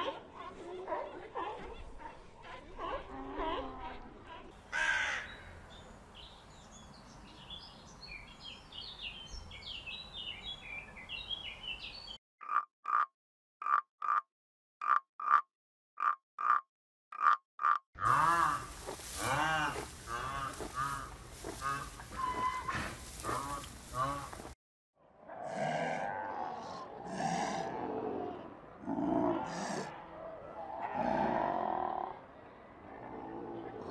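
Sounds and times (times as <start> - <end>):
tree frog croaking: 12.4 - 22.2
rhinoceros low calls: 18.0 - 24.5, 28.8 - 30.0.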